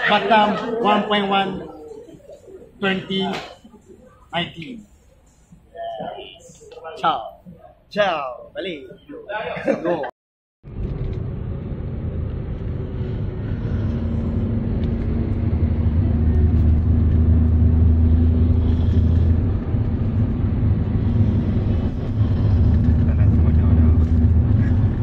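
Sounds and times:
car road and engine rumble: 10.6s - 25.0s.

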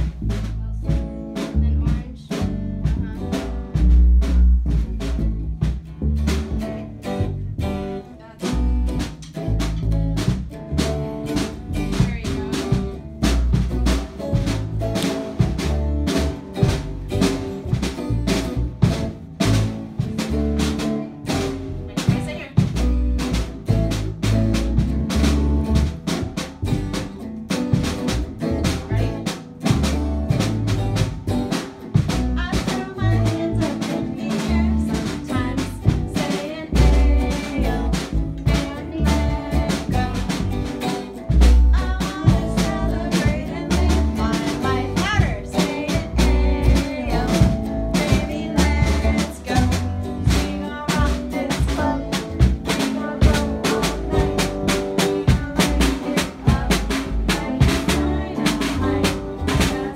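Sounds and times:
drum kit beat: 0.0s - 59.9s
electric guitar: 0.0s - 59.9s
boy singing into a microphone: 32.4s - 59.9s.

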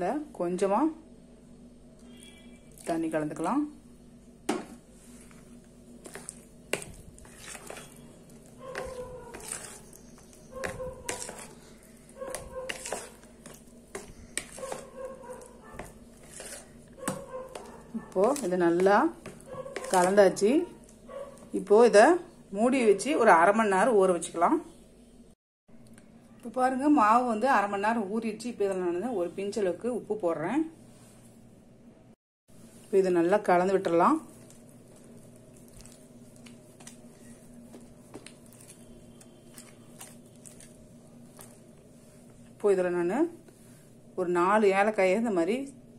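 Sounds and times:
spatula squeaking and scraping bowl: 2.0s - 2.9s, 5.0s - 21.7s, 34.2s - 42.2s
spoon stirring thick batter: 4.6s - 22.4s, 32.6s - 44.1s.

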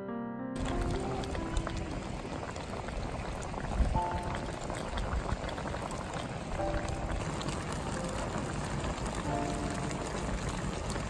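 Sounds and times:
stew bubbling in a pan: 0.6s - 11.0s.

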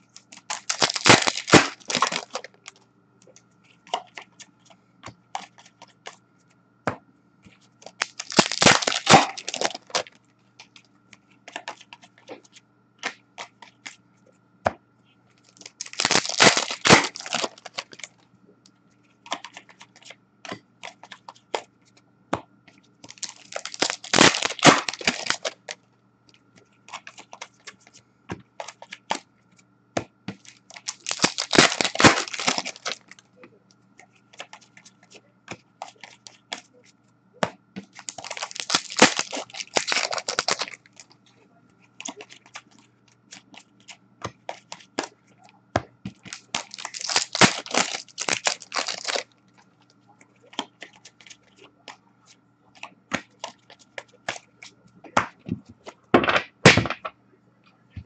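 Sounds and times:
faint steady hum: 0.0s - 58.0s
card pack wrappers tearing: 0.3s - 2.5s, 7.8s - 10.1s, 15.5s - 18.1s, 23.1s - 25.8s, 30.4s - 33.2s, 37.9s - 41.1s, 46.2s - 49.3s.

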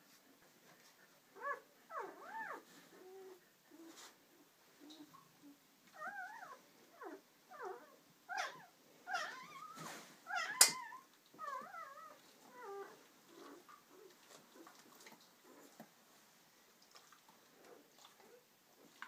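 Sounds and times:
puppy squealing: 6.0s - 13.0s
sharp click: 10.6s - 10.8s.

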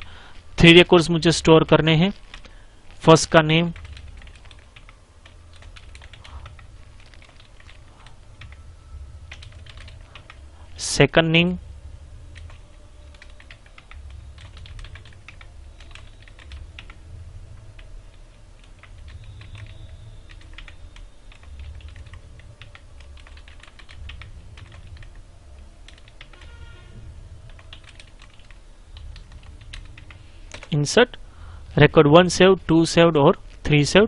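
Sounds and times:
low steady background hum: 0.0s - 34.0s
computer keyboard typing: 1.8s - 8.7s, 9.3s - 10.4s, 12.4s - 17.0s, 18.6s - 26.8s, 27.4s - 30.8s.

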